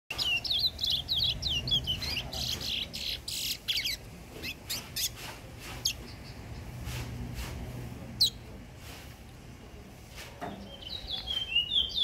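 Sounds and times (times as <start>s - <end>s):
songbird twittering and chirping: 0.1s - 6.9s, 10.4s - 12.0s.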